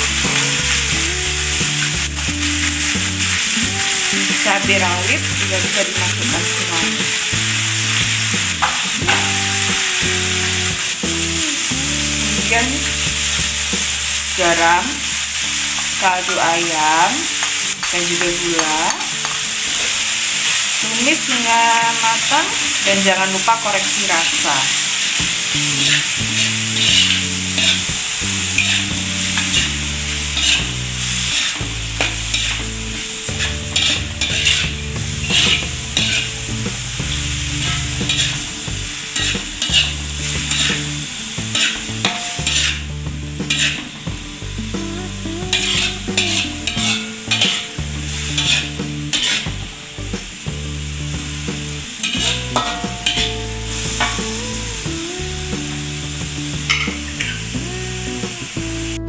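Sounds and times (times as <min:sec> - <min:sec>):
low shifting tones: 0:00.0 - 0:19.7, 0:25.2 - 0:59.0
food sizzling: 0:00.0 - 0:59.0
metal spatula scraping a wok: 0:23.6 - 0:44.0, 0:45.5 - 0:49.6, 0:51.8 - 0:54.4, 0:56.7 - 0:57.5.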